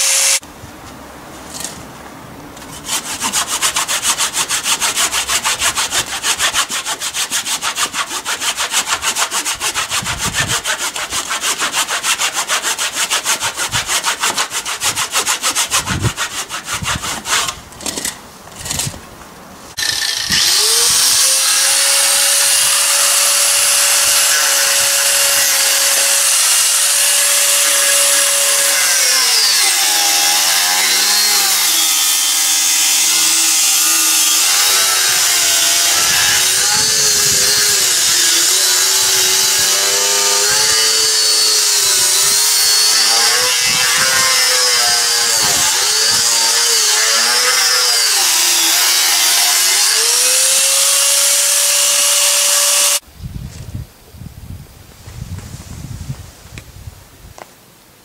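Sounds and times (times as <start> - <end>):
grinder cutting wooden log: 0.0 - 0.4, 2.6 - 18.9, 19.7 - 53.0
angle grinder whining: 19.8 - 53.0.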